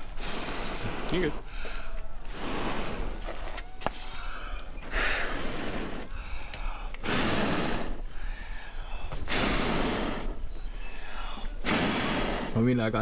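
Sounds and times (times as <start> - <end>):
person blowing out hard: 7.0 - 8.0, 9.3 - 10.4, 11.6 - 12.6.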